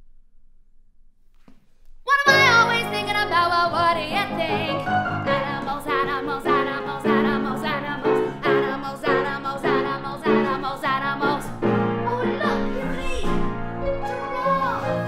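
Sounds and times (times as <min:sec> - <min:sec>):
person singing with vibrato: 0:02.1 - 0:13.4
instrumental accompaniment: 0:02.3 - 0:15.0.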